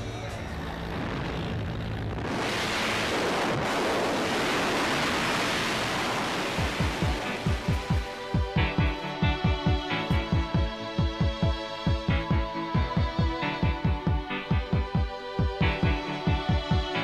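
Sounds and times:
rushing wind: 0.7 - 8.3
music track beat: 6.2 - 17.0.

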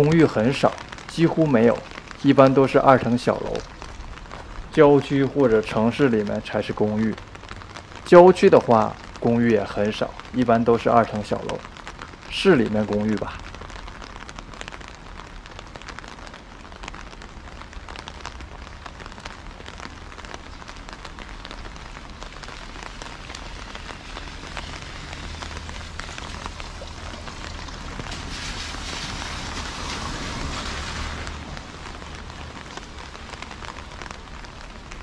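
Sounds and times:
rain pattering: 0.0 - 35.0
car tyres hissing on wet road: 21.6 - 35.0.

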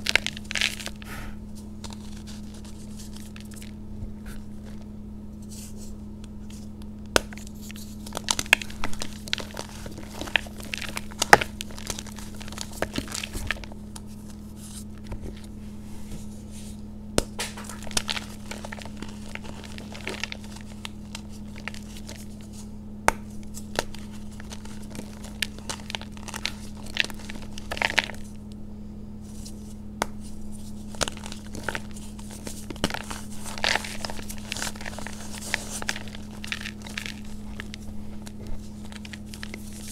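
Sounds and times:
powdery rustling: 0.0 - 4.8, 7.3 - 16.8, 17.4 - 28.4, 29.2 - 39.9
faint low hum: 0.0 - 39.9
chalk crunching by hand: 30.2 - 39.9.

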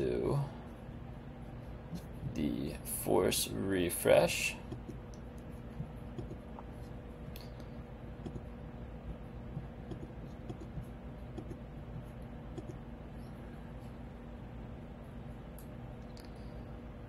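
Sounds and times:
low electrical hum: 0.0 - 17.0
computer mouse clicks: 4.7 - 6.5, 8.2 - 8.5, 9.6 - 11.6, 12.5 - 12.8.

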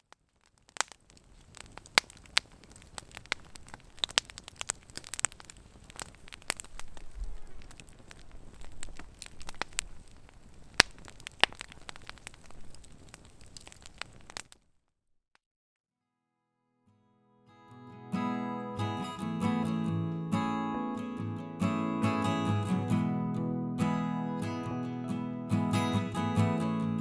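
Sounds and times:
campfire crackling and popping: 0.0 - 14.7.

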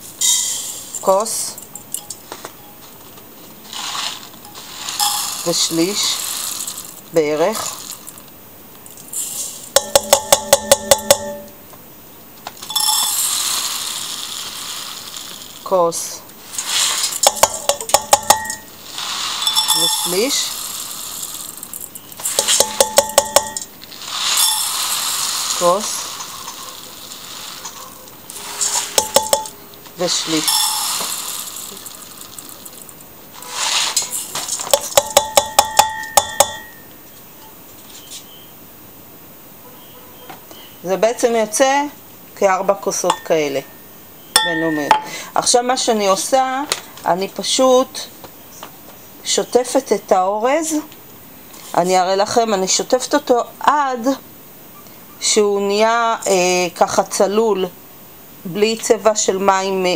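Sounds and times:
dry rice sliding into pot: 3.7 - 7.0, 12.8 - 15.8, 16.4 - 17.5, 18.5 - 22.6, 23.9 - 29.3, 30.0 - 34.4
metal cup clinking on pot rim: 5.0 - 5.7, 12.7 - 13.4, 17.2 - 18.7, 19.4 - 20.5, 28.8 - 29.6, 30.4 - 31.2, 34.7 - 36.8, 43.0 - 43.8.

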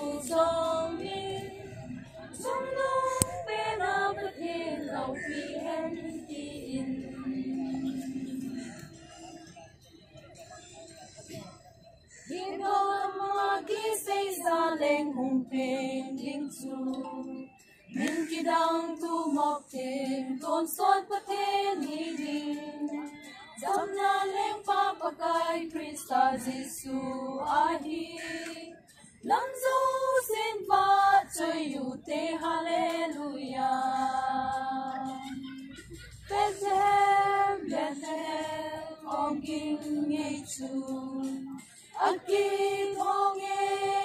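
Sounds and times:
women singing unaccompanied: 0.0 - 9.0, 12.2 - 44.0.

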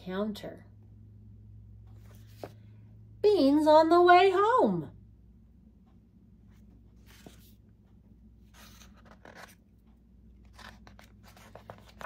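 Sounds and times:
paper pages rustling: 2.0 - 2.6, 7.0 - 7.6, 8.4 - 9.7, 10.4 - 12.0.

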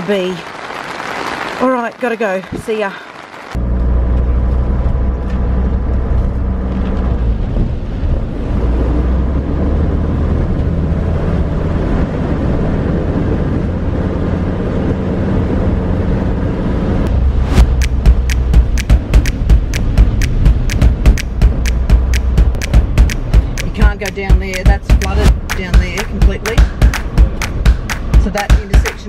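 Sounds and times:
car engine and tyre rumble: 3.5 - 29.0
music with a beat: 17.4 - 29.0.

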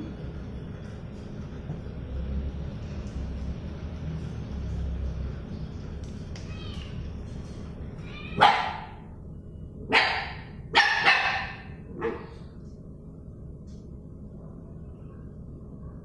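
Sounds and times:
puppy barking: 8.3 - 9.0, 9.9 - 12.4.

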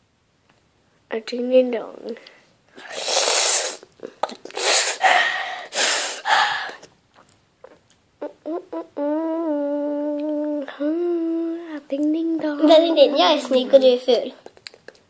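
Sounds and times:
child huffing: 2.8 - 6.9
child humming: 8.2 - 11.9.

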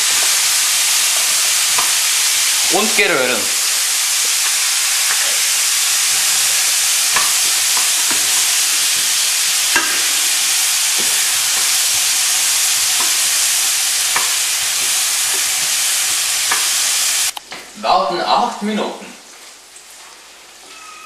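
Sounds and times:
potatoes sizzling in a pan: 0.0 - 21.0.

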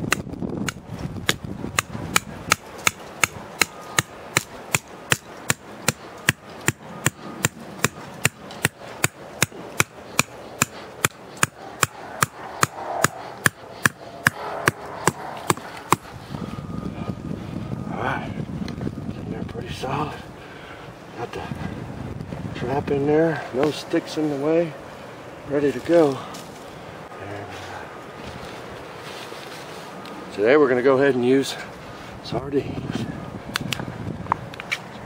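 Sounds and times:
hammer striking metal stake: 0.1 - 16.1.

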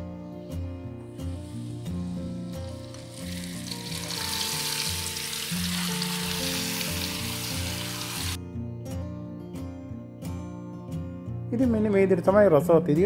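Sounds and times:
background music: 0.0 - 13.0
crab frying in hot oil: 2.5 - 8.4.

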